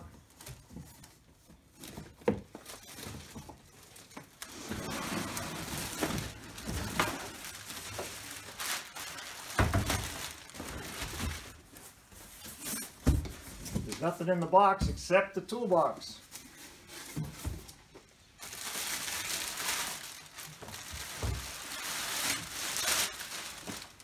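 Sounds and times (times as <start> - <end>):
plastic wrap crinkling: 0.0 - 13.1, 18.0 - 24.0
cardboard packaging scraping: 0.1 - 13.7, 18.4 - 24.0.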